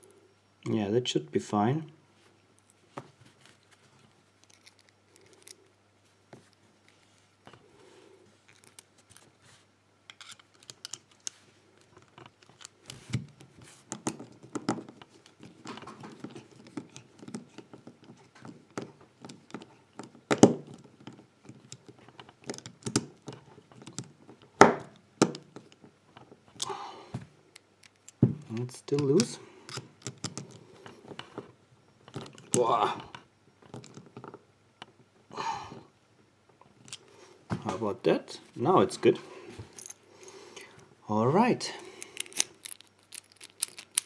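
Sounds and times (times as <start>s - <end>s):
screwdriver clicking and scraping: 10.1s - 13.3s, 42.0s - 44.0s.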